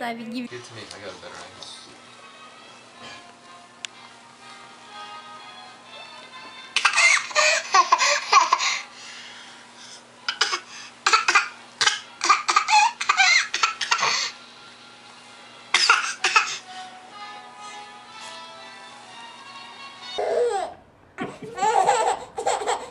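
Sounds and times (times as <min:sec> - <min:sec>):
baby laughing: 0:06.8 - 0:08.8, 0:10.3 - 0:14.3, 0:20.2 - 0:22.9.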